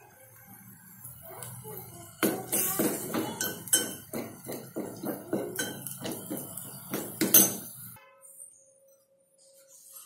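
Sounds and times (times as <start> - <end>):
metal spoon clinking in pot: 2.5 - 7.8.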